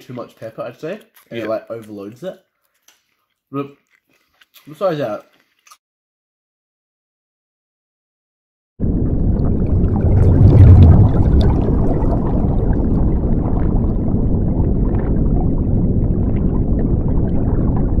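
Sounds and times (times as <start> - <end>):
bubbling and fizzing crackles: 8.8 - 18.0
underwater rumbling wash: 8.8 - 18.0.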